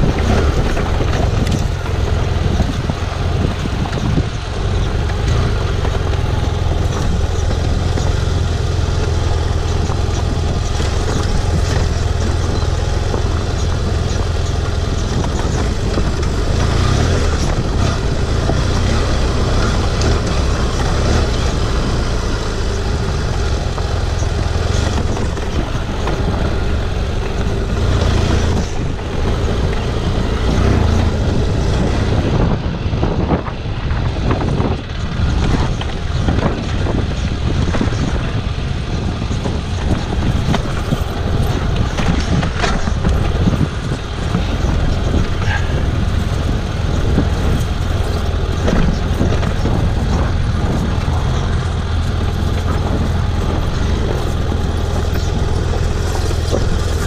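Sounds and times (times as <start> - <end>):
knocks and rattles from rough ground: 0.0 - 57.0
motorcycle engine running: 0.0 - 57.0.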